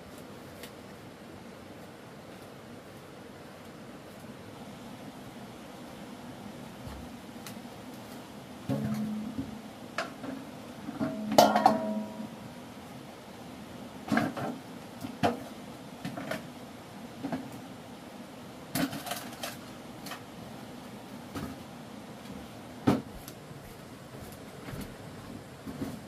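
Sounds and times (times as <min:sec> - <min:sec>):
hard objects knocking and clattering: 0:08.7 - 0:10.3.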